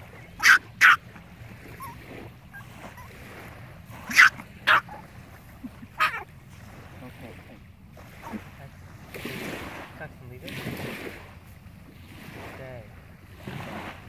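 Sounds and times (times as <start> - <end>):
small dog barking sharply: 0.4 - 1.0, 4.0 - 5.0, 6.0 - 6.2.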